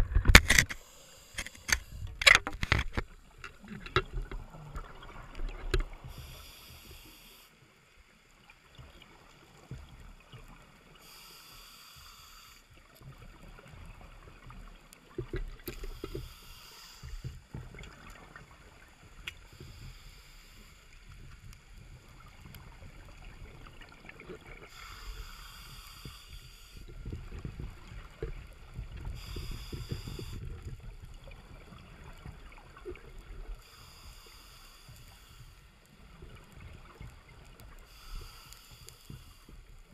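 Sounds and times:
exhaled bubbles rumbling: 0.0s - 0.5s, 1.9s - 6.1s
regulator inhale hiss: 0.6s - 2.4s, 6.0s - 7.8s, 10.9s - 13.0s, 15.7s - 17.5s, 19.4s - 21.5s, 24.6s - 27.0s, 29.0s - 30.8s, 33.5s - 35.9s, 37.7s - 39.9s.

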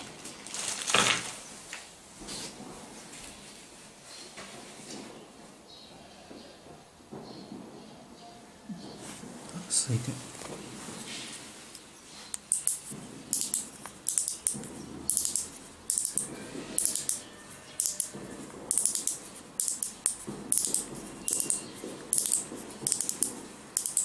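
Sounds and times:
plastic seal ratcheting clicks: 22.2s - 24.0s.

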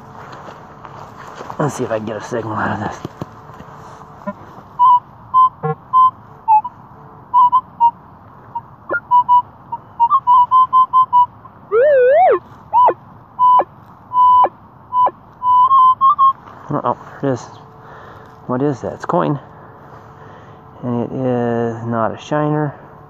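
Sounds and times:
wavering electronic tone: 4.2s - 16.4s
metal detector short beeps: 4.8s - 6.7s, 7.3s - 8.0s, 8.9s - 11.9s, 12.8s - 16.4s.

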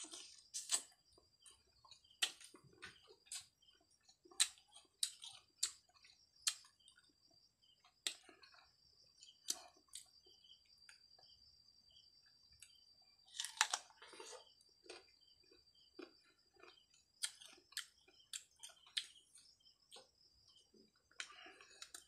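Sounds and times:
chewing crisp mango: 0.0s - 7.1s, 7.7s - 10.2s, 12.6s - 22.0s.

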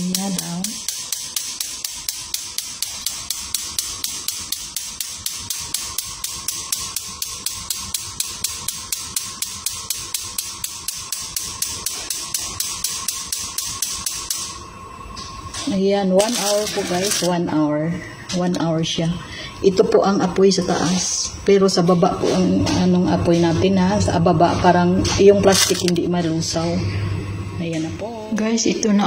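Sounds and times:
gas oven igniter clicking: 0.0s - 14.6s
faint steady hum: 0.0s - 29.0s.

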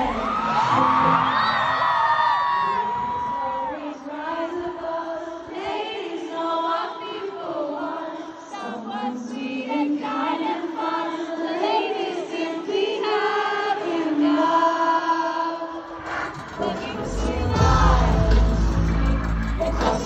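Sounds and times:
live pop concert music: 0.0s - 6.0s, 15.0s - 20.0s
crowd singing along: 0.0s - 20.0s.

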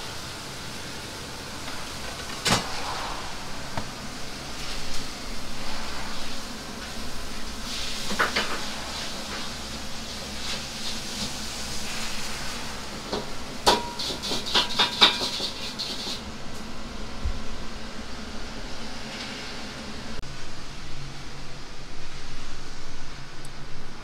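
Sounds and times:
kitchen hiss: 0.0s - 17.0s.

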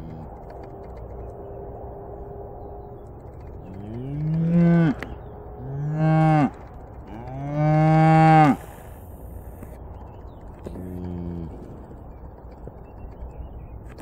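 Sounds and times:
cow mooing: 3.7s - 8.6s.

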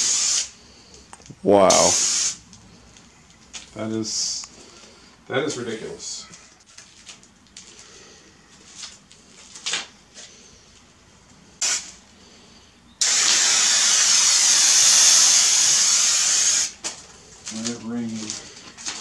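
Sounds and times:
spray can hissing: 0.0s - 0.6s, 1.7s - 2.4s, 11.6s - 12.0s, 13.0s - 16.8s.

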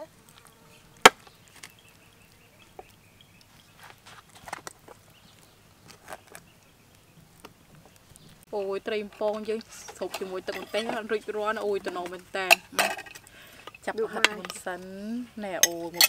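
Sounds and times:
wooden skewers clicking on metal: 9.0s - 16.0s.

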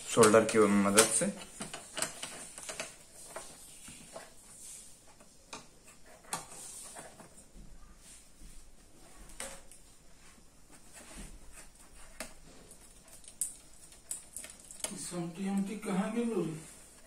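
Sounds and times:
faint clicks and taps: 10.7s - 15.7s.

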